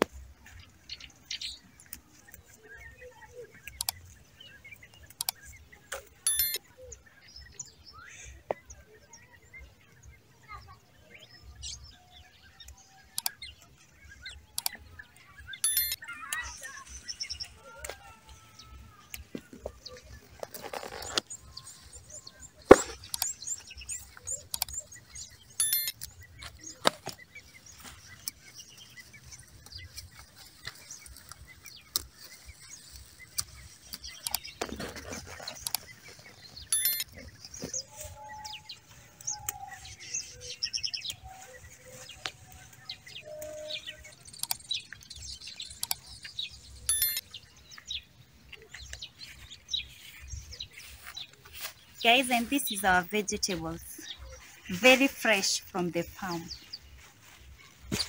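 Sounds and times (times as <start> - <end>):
birds chirping: 0.0 - 58.0
leaves rustling and clicking: 12.6 - 58.0.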